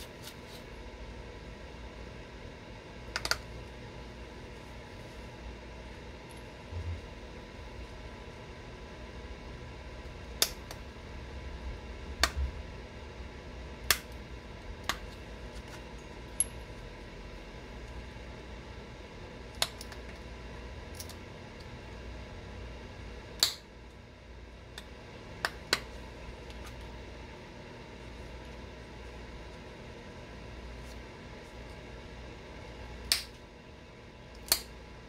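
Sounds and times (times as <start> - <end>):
steady low hum: 0.0 - 35.0
stone flakes snapping clicks: 34.4 - 34.7.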